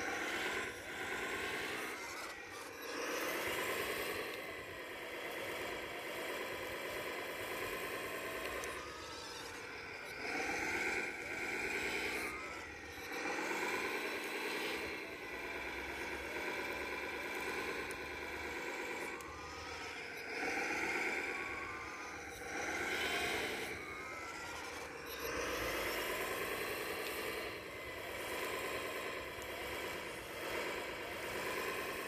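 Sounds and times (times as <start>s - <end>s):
toy excavator motors whining: 0.0s - 32.0s.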